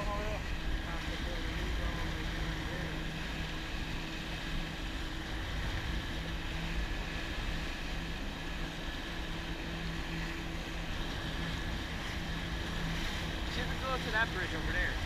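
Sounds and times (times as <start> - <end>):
jet ski engine humming: 0.0 - 15.0
water rushing and spraying: 0.0 - 15.0.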